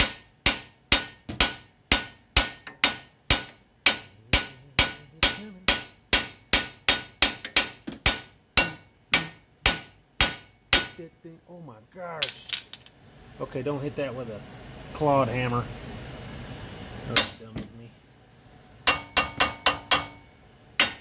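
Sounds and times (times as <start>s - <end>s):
hammer striking metal: 0.0s - 11.0s, 17.1s - 17.7s, 18.8s - 21.0s.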